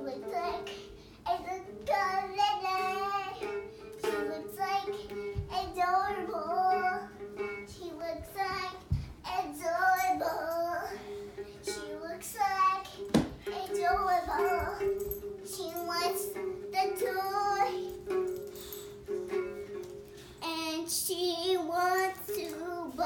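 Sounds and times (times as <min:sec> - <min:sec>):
girl singing: 0:00.0 - 0:23.0
dull thumps: 0:08.2 - 0:09.3, 0:13.0 - 0:14.8.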